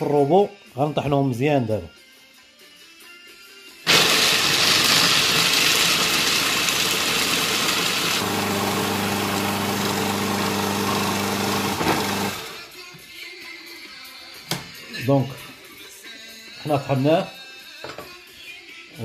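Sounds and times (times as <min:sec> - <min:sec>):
food processor grinding nuts: 0:03.9 - 0:12.7.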